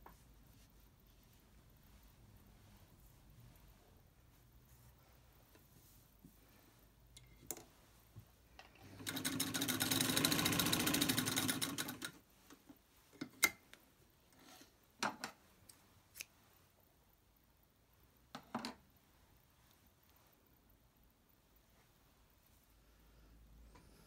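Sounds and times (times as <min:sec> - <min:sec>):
sewing machine stitching: 0:08.8 - 0:12.2.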